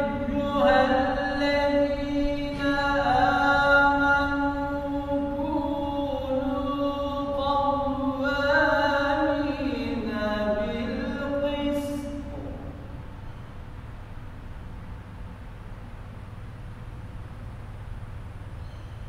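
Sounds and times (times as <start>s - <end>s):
man chanting recitation: 0.0s - 12.7s.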